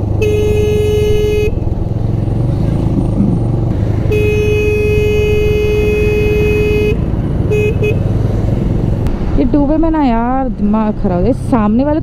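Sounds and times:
motorcycle engine rumble: 0.0 - 12.0
wind: 0.0 - 12.0
vehicle horn: 0.2 - 1.6, 4.0 - 8.1.

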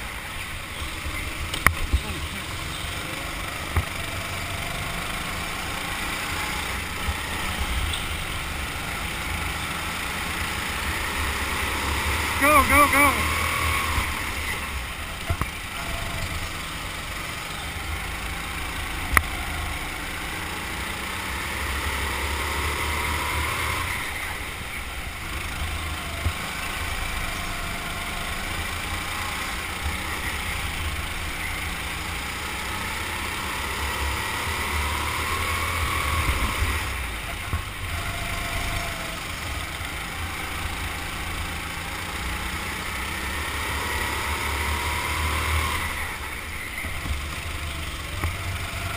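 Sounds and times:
go-kart engine revving: 0.0 - 48.9.

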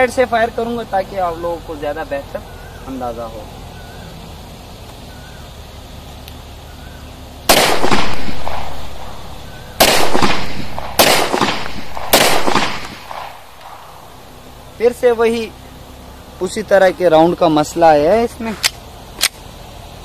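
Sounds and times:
pistol shots with echo: 7.5 - 14.5.

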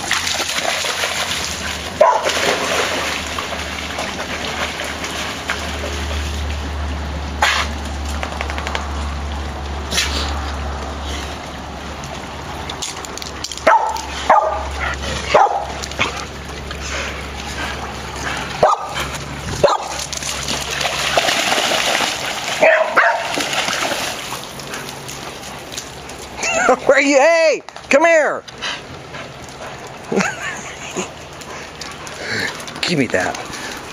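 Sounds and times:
paws splashing through water: 0.0 - 26.9, 27.6 - 33.9
dogs barking and yipping: 1.5 - 2.8, 13.3 - 26.8.

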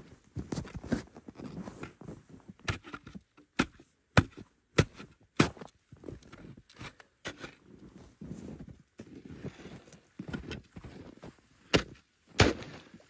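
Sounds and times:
shovel chopping into snow and ice: 2.6 - 7.6, 11.7 - 12.9.

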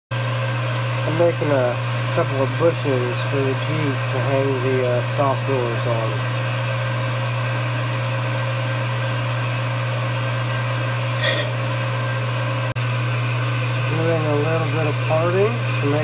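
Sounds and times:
drill squealing in metal: 11.2 - 11.6
lathe motor humming: 12.8 - 16.0.

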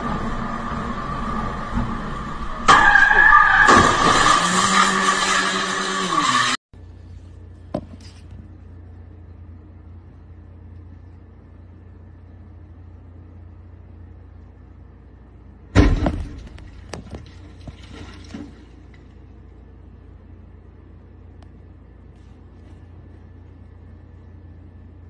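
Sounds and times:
low steady hum: 6.8 - 25.0
loud bang: 15.8 - 16.8.

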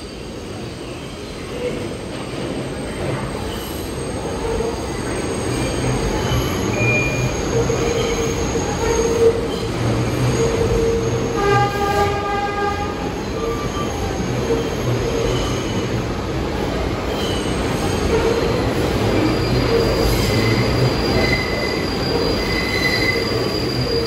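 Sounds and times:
subway wheels rumbling and squealing: 0.0 - 24.0.

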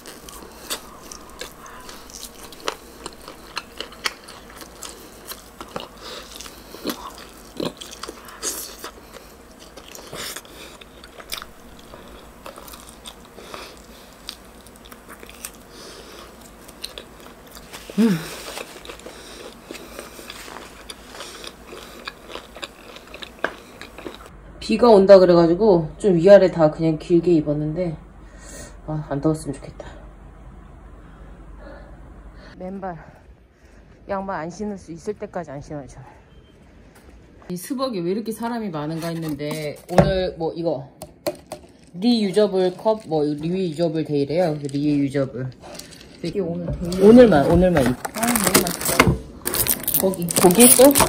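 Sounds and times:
chewing and gnawing: 0.0 - 24.3, 41.4 - 51.0.

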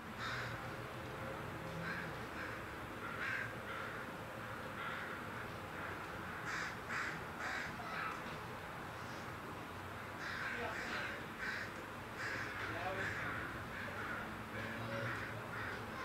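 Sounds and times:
crows cawing: 0.2 - 0.6, 1.8 - 4.2, 4.8 - 8.2, 10.0 - 16.0.

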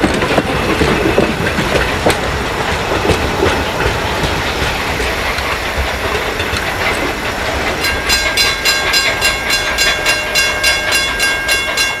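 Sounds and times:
train wheels clacking on rails: 0.0 - 12.0
high steady ringing: 7.8 - 12.0.

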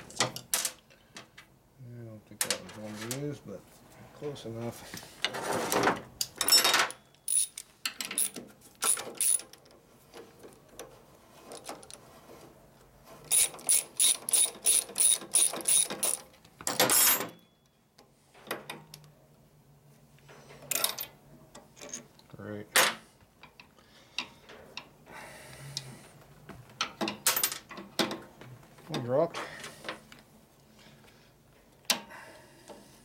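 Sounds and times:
metal tools clinking: 6.4 - 9.4
socket ratchet clicking: 7.3 - 9.4, 13.3 - 16.2.

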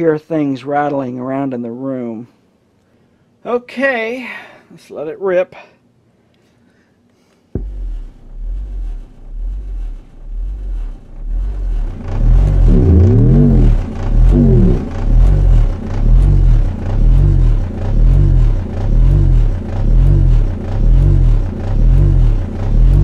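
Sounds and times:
pulsing bass from subwoofers: 7.6 - 23.0.

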